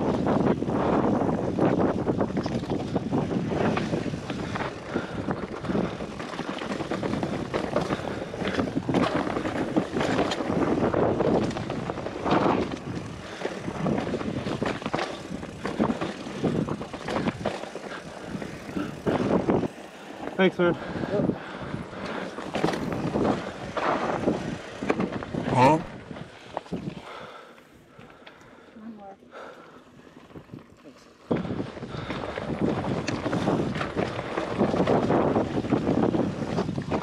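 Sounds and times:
bike rattling over rocks: 0.0s - 27.4s, 29.8s - 37.0s
wind buffeting microphone: 0.0s - 27.4s, 30.0s - 37.0s.

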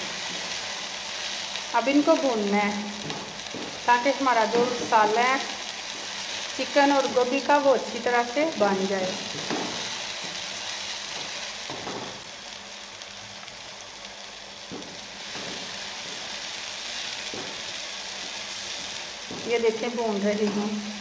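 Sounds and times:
food sizzling in a wok: 0.0s - 21.0s
wooden spatula knocking pan: 9.3s - 10.4s.

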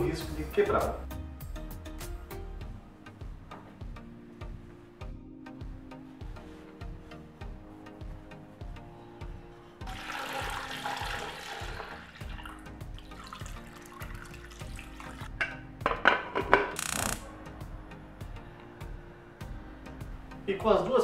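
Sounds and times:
background music: 0.0s - 21.0s.

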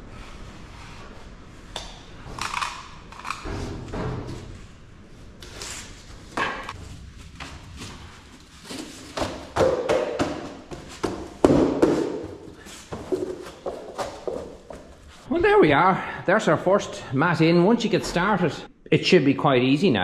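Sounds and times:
floor mat thuds and taps: 9.2s - 12.4s.

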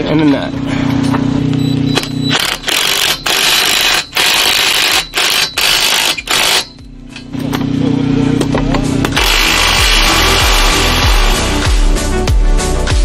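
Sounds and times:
impact driver hammering: 2.0s - 6.9s, 9.0s - 11.4s
impact driver motor humming: 2.3s - 6.8s, 9.1s - 11.9s.

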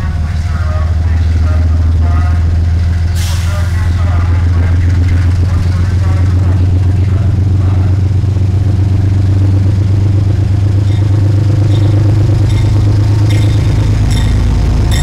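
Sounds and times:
diesel locomotive engine droning: 0.0s - 15.0s
high ringing: 10.8s - 15.0s.

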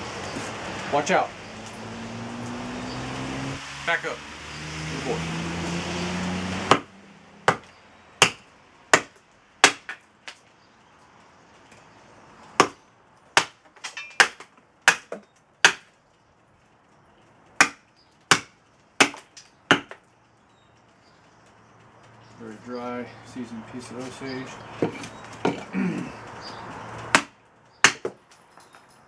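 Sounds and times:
axe chopping wood: 6.6s - 10.4s, 12.6s - 12.8s, 13.4s - 15.9s, 17.6s - 20.0s, 24.8s - 25.8s, 27.0s - 28.2s.

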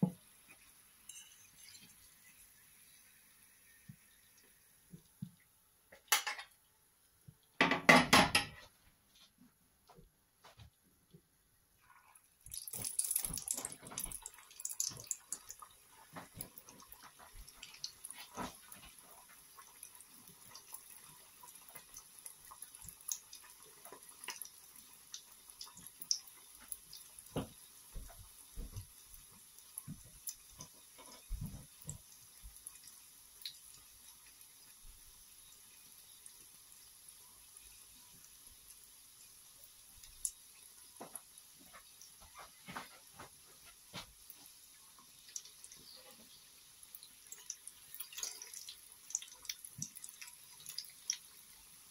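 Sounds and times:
food sizzling in hot oil: 0.0s - 4.9s, 12.4s - 51.9s
oil popping: 12.5s - 19.8s.

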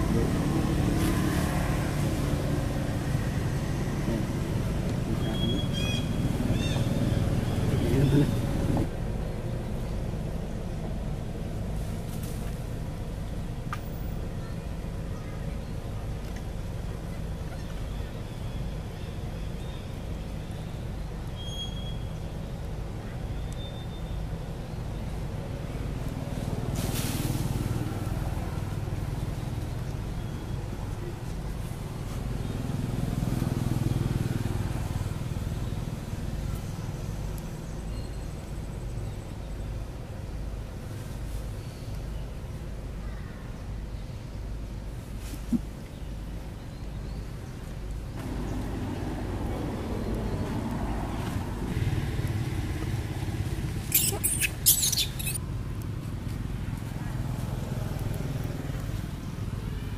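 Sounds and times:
vehicle engine rumbling: 0.0s - 43.0s, 44.4s - 59.9s
brief hiss: 26.8s - 27.6s.

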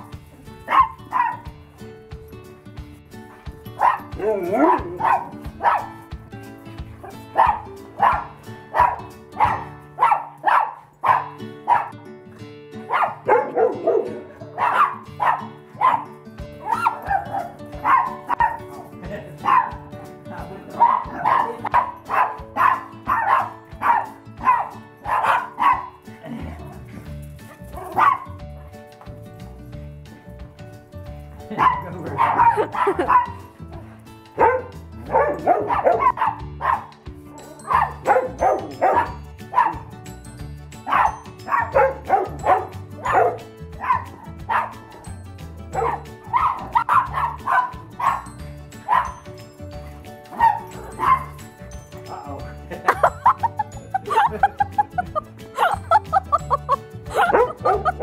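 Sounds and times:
background music: 0.0s - 58.0s
dog barking: 0.7s - 1.5s, 3.8s - 6.0s, 7.0s - 12.0s, 12.9s - 18.8s, 19.4s - 19.8s, 20.8s - 26.0s, 27.8s - 28.3s, 31.5s - 36.9s, 37.7s - 39.9s, 40.8s - 45.0s, 45.7s - 48.3s, 48.9s - 49.2s, 50.3s - 51.4s, 57.1s - 58.0s.

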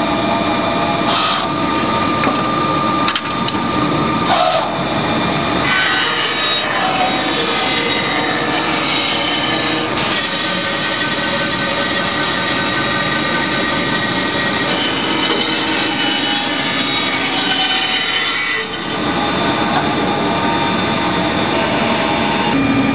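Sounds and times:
bandsaw cutting plywood: 5.6s - 22.6s.

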